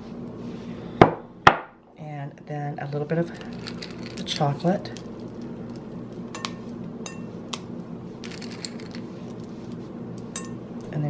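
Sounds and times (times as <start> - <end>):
glass bowls clinking: 6.4 - 7.3, 10.4 - 10.6.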